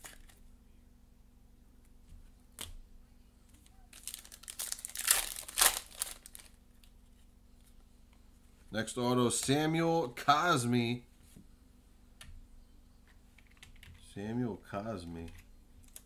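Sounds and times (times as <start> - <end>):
foil wrapper tearing and crinkling: 3.9 - 6.6.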